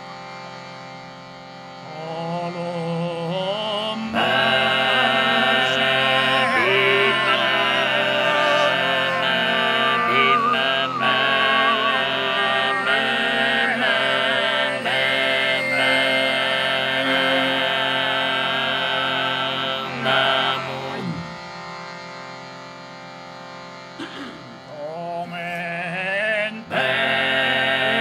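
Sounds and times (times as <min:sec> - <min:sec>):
overtone singing: 0:01.9 - 0:21.4.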